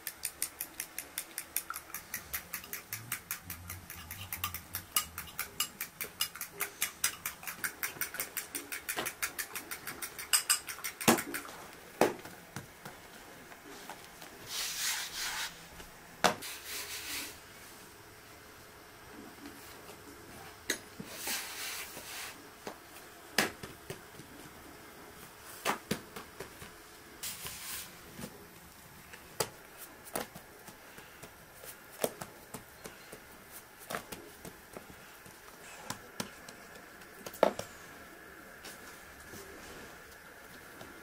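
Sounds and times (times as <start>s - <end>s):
utensils tapping metal pan: 0.0s - 11.5s
hands working dough: 0.0s - 17.4s, 20.6s - 41.0s
short rustling scrapes: 14.5s - 15.6s.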